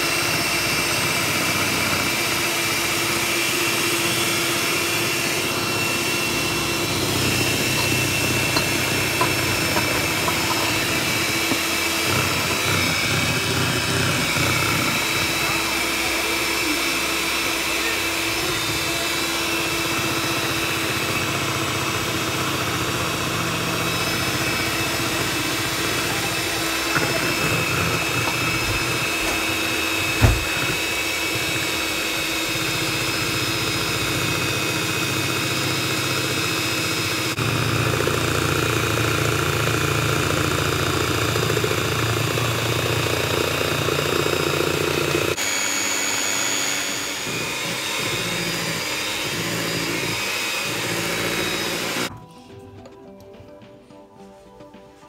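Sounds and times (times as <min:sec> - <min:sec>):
electric hand mixer running: 0:00.0 - 0:52.1
sharp knock: 0:30.2 - 0:30.6.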